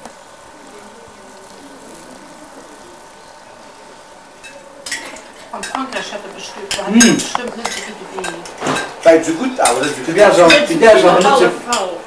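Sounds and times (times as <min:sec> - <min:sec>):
cutlery clinking on plates: 0:04.4 - 0:11.9.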